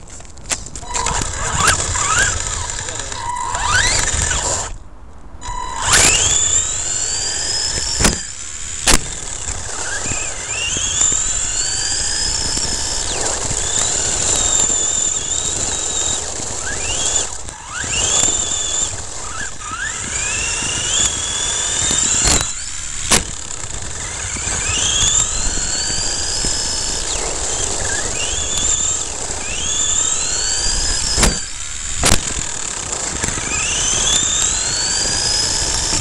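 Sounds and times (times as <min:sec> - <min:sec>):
rc truck electric motor whining: 0:00.5 - 0:04.8, 0:05.4 - 0:36.0
sharp knocks: 0:23.1 - 0:23.4, 0:31.2 - 0:32.4.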